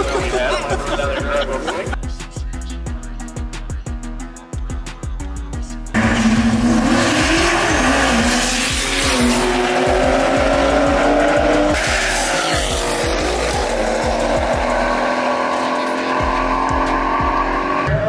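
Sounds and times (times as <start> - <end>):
hip-hop beat: 0.0 - 18.0
car engine at high revs: 6.0 - 18.0.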